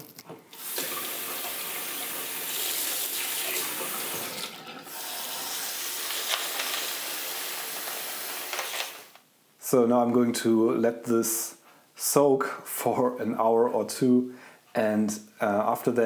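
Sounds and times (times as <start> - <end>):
tap water pouring into bowl: 0.5 - 6.7.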